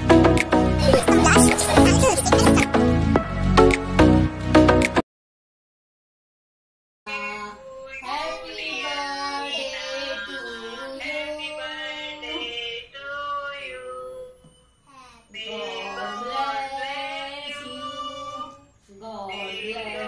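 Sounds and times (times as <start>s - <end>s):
voices singing: 0.8s - 2.7s, 15.3s - 20.0s.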